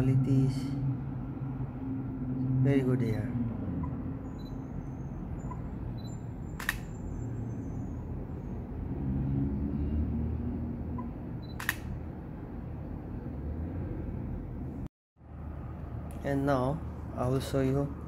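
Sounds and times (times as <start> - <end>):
camera shutter click: 6.6 - 6.9, 11.5 - 12.0.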